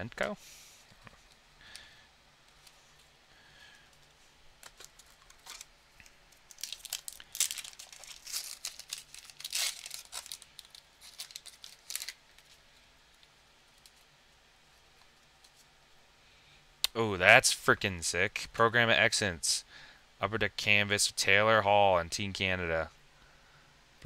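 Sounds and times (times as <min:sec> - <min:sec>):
wrapper crinkling and tearing: 0:04.6 - 0:14.1.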